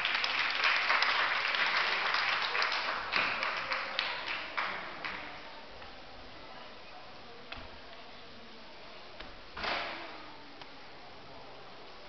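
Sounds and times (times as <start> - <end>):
spectators clapping: 0.0 - 5.4.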